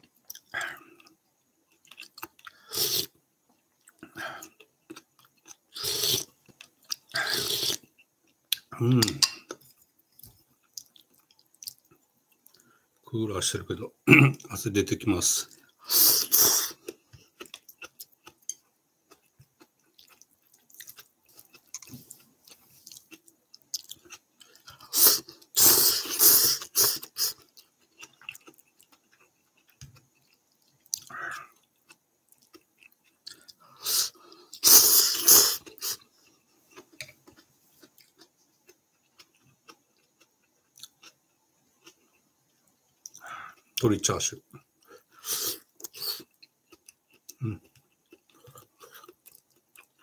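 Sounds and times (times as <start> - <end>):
faint chewing and mouth clicks: 0.0 - 13.0, 15.4 - 50.0
person slurping noodles: 2.7 - 3.1, 5.7 - 6.3, 7.2 - 7.8, 15.8 - 16.8, 24.8 - 27.4, 33.8 - 36.0.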